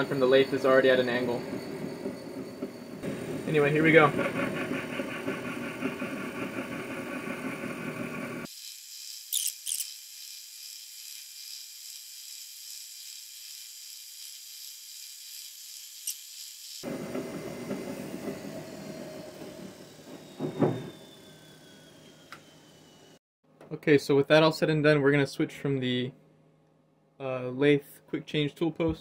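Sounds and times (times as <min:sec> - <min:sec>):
milling machine running: 0:02.5 - 0:14.2
high-pitched cutting whine: 0:08.0 - 0:23.1.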